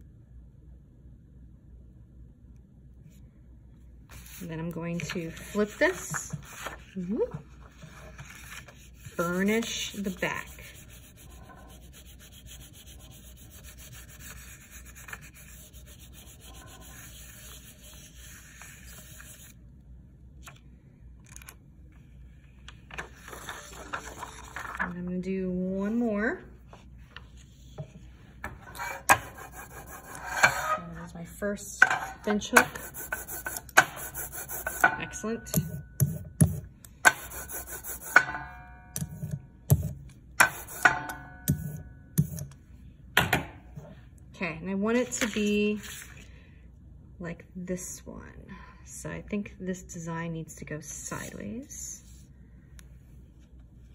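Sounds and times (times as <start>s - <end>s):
hand rubbing paper: 4.1s - 19.6s
paper rustling: 5.0s - 19.6s, 22.6s - 25.0s, 45.1s - 46.3s.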